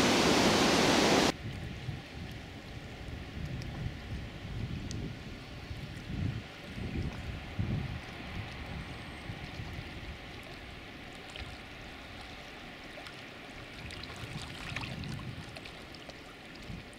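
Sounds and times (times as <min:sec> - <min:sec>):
wind rumble on microphone: 0:00.0 - 0:12.5, 0:13.6 - 0:16.9
water lapping at rocky edge: 0:05.7 - 0:16.9.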